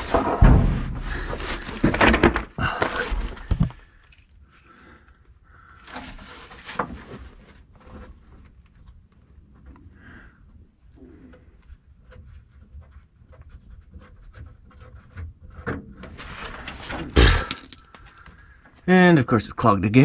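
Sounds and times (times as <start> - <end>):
drain pan clunking and clattering: 0.0 - 3.8.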